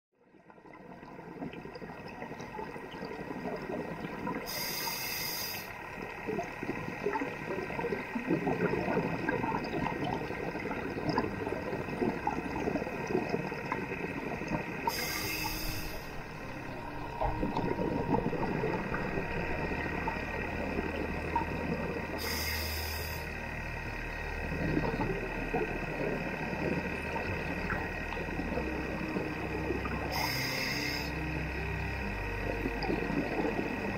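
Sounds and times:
faint underwater crackle: 0.2s - 33.9s
underwater boat engine drone: 0.2s - 33.9s
diver regulator hiss: 4.4s - 6.0s, 14.8s - 16.4s, 21.8s - 23.8s, 30.0s - 31.5s.

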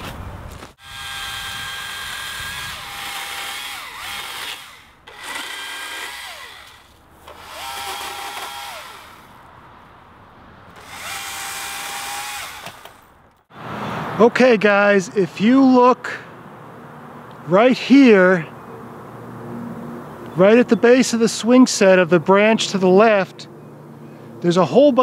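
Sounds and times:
battery chainsaw whine: 0.8s - 9.5s, 10.8s - 13.1s.

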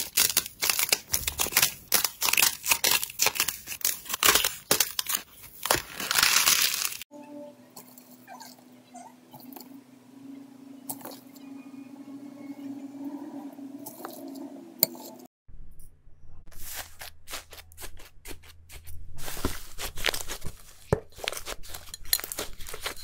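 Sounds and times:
slime crunching and crackling: 0.0s - 7.1s, 19.2s - 23.0s
steady low hum: 7.2s - 16.5s.

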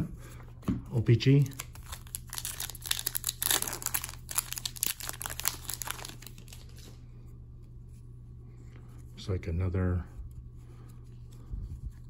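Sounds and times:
foil wrapper crinkling: 1.3s - 7.0s.

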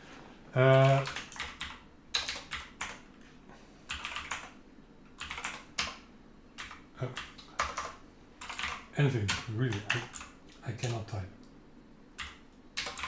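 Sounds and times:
typing on keyboard: 0.7s - 3.0s, 3.9s - 4.6s, 5.2s - 6.0s, 6.6s - 11.0s, 12.2s - 13.0s.

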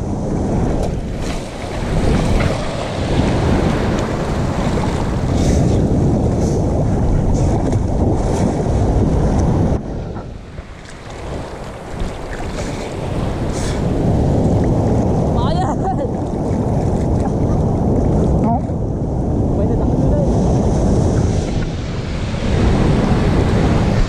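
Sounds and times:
ocean surf breaking: 0.0s - 18.4s, 19.0s - 24.0s
wind buffeting microphone: 0.0s - 24.0s
water churning around swimmer: 0.3s - 9.5s, 10.2s - 18.3s.

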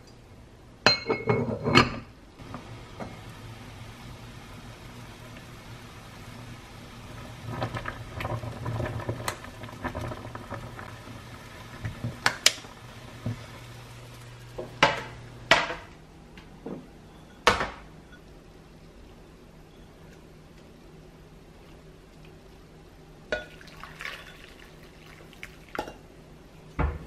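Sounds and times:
low steady hum: 0.0s - 27.0s
dishes and utensils clattering: 0.9s - 2.1s.

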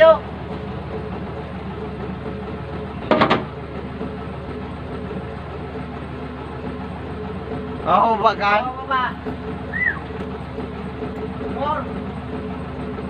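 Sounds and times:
excavator diesel engine idling: 0.0s - 13.0s.

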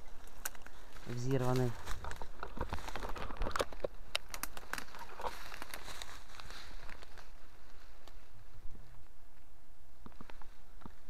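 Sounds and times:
footsteps through dry leaves: 0.0s - 8.8s.

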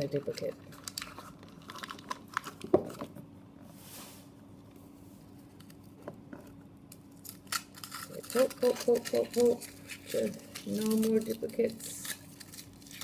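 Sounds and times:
packaging crinkling and clicking: 0.4s - 3.1s
soft rustle: 3.7s - 5.5s.

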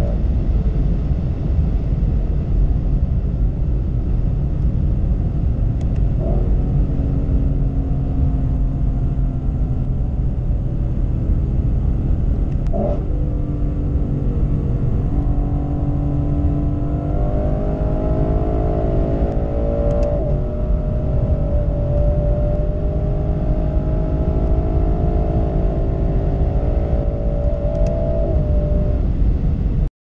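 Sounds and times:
car engine at full throttle: 0.0s - 29.9s
heavy low rumble: 0.0s - 29.9s.

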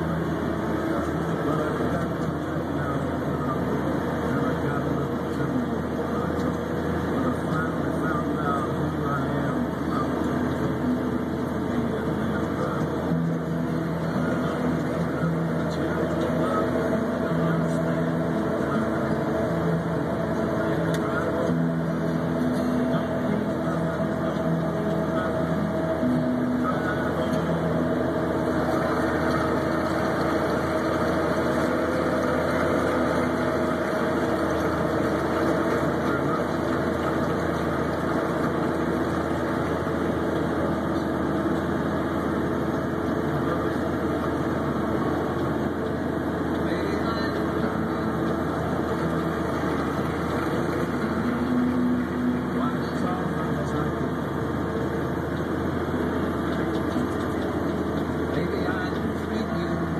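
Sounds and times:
diesel engine humming: 0.0s - 59.9s.

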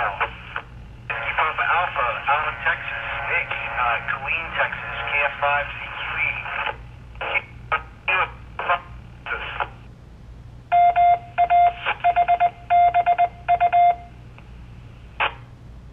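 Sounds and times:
voice over two-way radio: 0.0s - 9.8s
buzzy morse code beeps: 10.7s - 14.1s.

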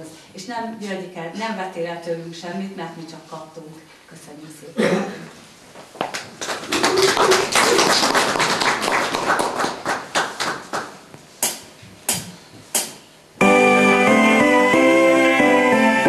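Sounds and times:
audience applauding: 6.2s - 11.0s
instrumental music: 13.4s - 16.0s.

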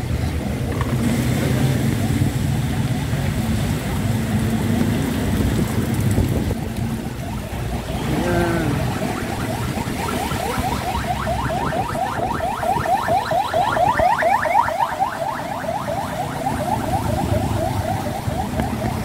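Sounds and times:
ambulance siren yelping: 6.3s - 19.0s.

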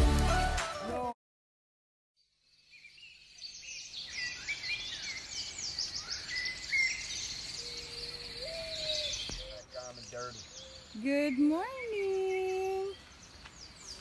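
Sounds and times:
small birds chirping and singing: 2.2s - 14.0s
low hooting call: 7.6s - 11.9s.

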